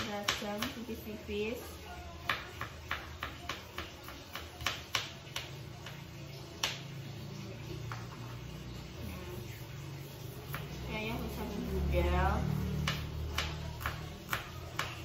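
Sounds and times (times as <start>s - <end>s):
knife chopping on plastic board: 0.0s - 1.0s, 2.2s - 6.9s, 10.4s - 10.8s, 12.6s - 15.0s.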